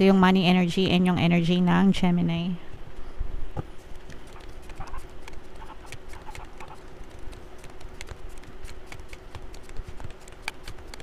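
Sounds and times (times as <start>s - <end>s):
cards being shuffled: 3.7s - 11.0s.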